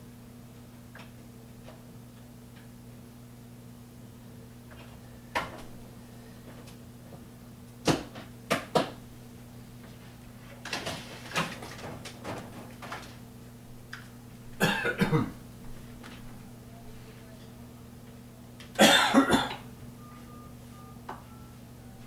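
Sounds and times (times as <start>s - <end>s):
steady low hum: 0.0s - 22.0s
objects knocking and clattering: 10.6s - 13.2s.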